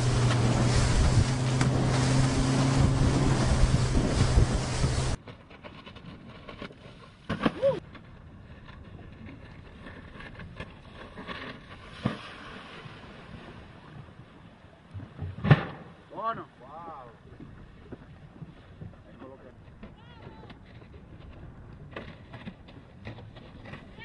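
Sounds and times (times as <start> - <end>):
wind on microphone: 0.0 - 5.2
water slapping against board: 0.0 - 8.1, 8.8 - 14.2
sharp thump: 15.2 - 15.9.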